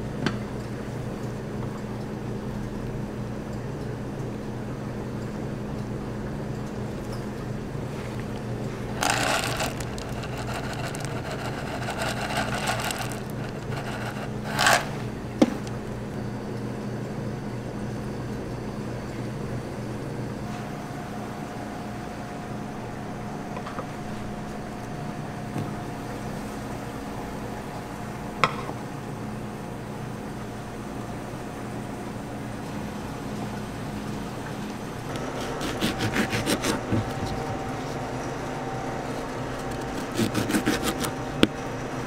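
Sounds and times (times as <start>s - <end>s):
low electrical hum: 0.0s - 42.0s
handling noises at counter: 8.0s - 15.8s.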